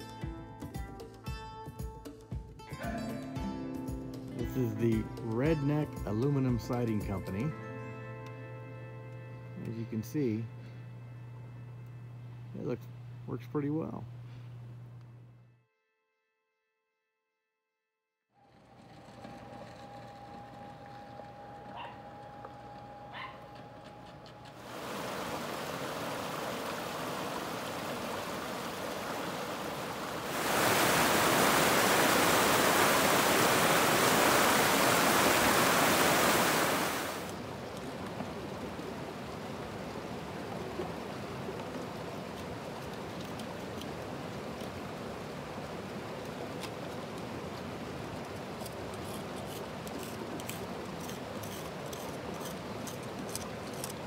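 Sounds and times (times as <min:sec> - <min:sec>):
river rushing: 0:24.6 - 0:54.0
hand tool scraping rock: 0:48.4 - 0:54.0.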